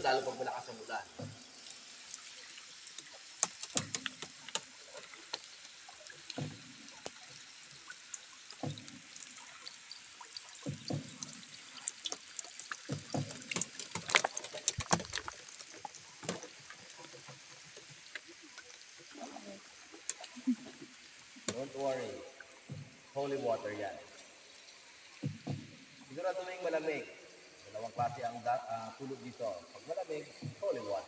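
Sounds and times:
sharp water drips: 0:00.0 - 0:31.0
paddle splashing through water: 0:10.4 - 0:19.3
knocks: 0:25.2 - 0:25.8.

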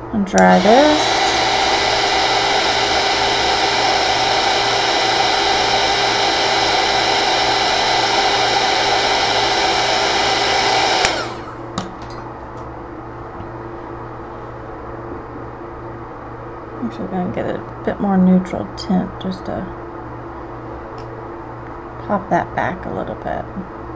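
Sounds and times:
faint motor whine: 0:00.0 - 0:23.9
heat gun blowing: 0:00.4 - 0:11.7.

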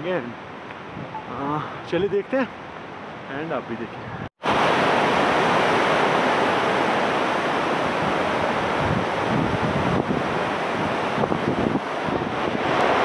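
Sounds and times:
wind buffeting microphone: 0:00.8 - 0:01.3, 0:04.0 - 0:13.0
mountain stream roaring: 0:04.4 - 0:13.0.

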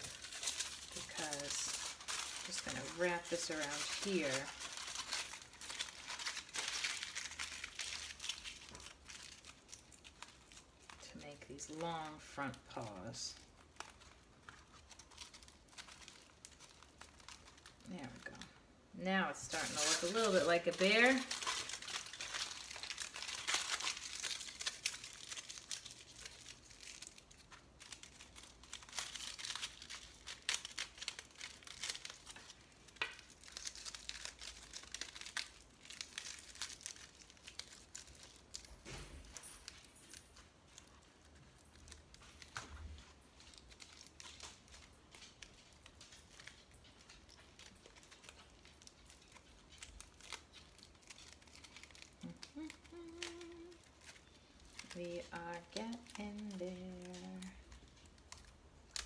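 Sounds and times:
aluminium foil crinkling: 0:00.0 - 0:59.0.

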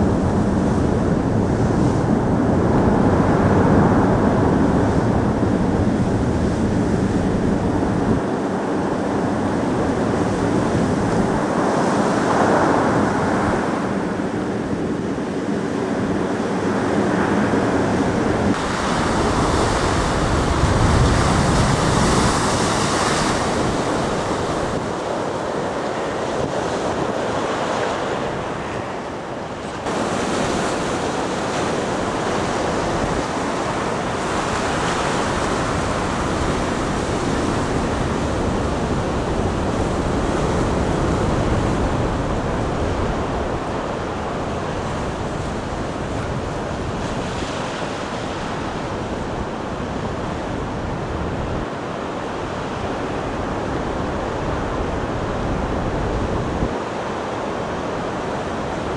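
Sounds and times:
storm waves breaking: 0:00.0 - 0:58.9
wind buffeting microphone: 0:00.0 - 0:58.9.

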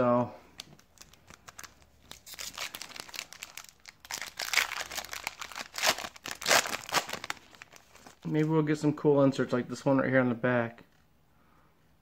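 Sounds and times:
foil wrapper tearing and crinkling: 0:00.9 - 0:08.2.

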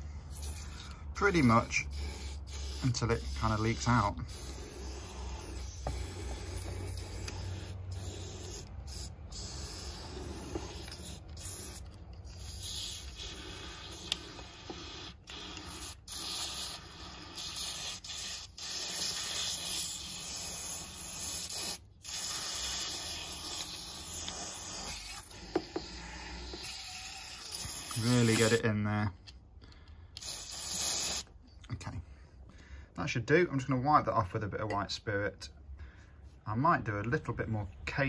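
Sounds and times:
aerosol spray hissing: 0:00.3 - 0:28.6, 0:30.2 - 0:31.3.

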